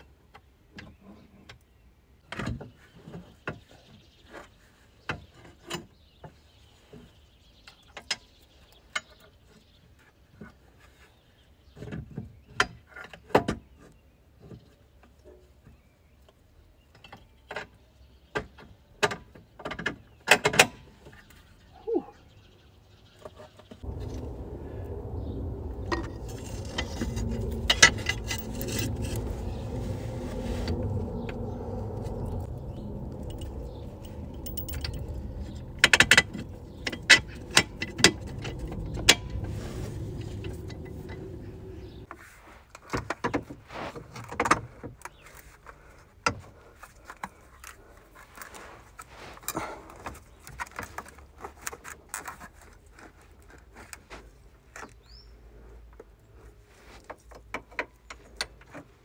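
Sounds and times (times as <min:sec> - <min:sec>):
steady low hum: 0:23.8 - 0:42.1
metal parts clinking and scraping: 0:25.9 - 0:29.3, 0:33.1 - 0:39.4.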